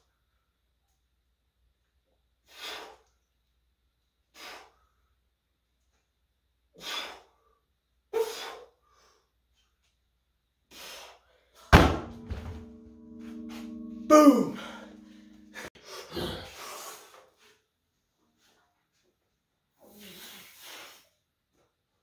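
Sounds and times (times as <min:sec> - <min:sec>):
sharp forceful breaths: 0:02.4 - 0:03.1, 0:04.3 - 0:05.2, 0:06.8 - 0:07.6
log crashing onto tire: 0:11.8 - 0:12.1.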